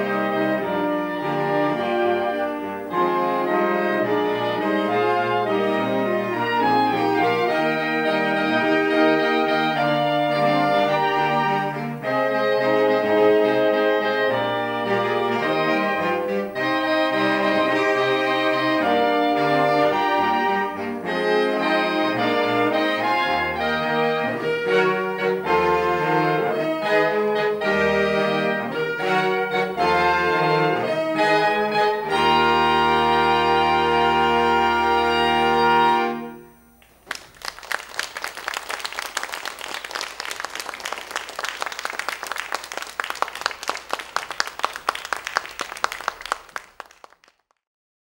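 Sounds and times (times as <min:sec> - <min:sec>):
saxophone ensemble playing: 0:00.0 - 0:37.0
audience applause: 0:36.8 - 0:47.6.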